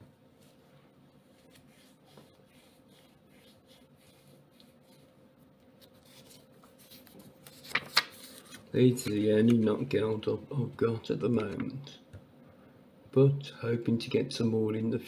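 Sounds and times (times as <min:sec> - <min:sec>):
faint steady hum: 0:00.0 - 0:15.0
paper banknotes rustling: 0:05.8 - 0:09.8.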